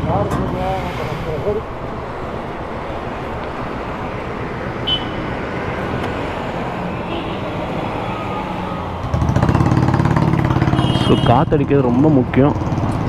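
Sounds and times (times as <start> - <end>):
traffic and road noise: 0.0 - 13.0.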